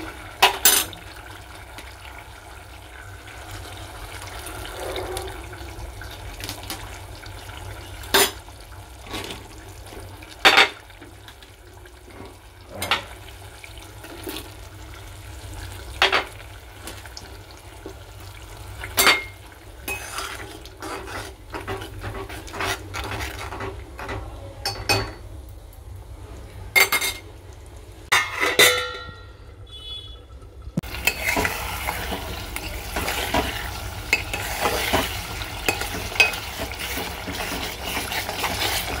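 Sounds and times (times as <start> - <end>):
spoon stirring and scraping curry: 19.8 - 24.3, 30.8 - 39.0
metal spoon clinking on pot: 35.6 - 36.5.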